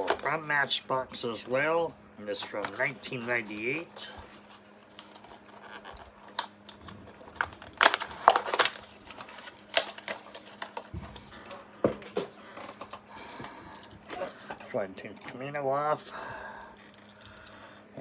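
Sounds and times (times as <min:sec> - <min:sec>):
faint steady hum: 0:00.0 - 0:18.0
plastic packaging crinkling: 0:04.8 - 0:11.6.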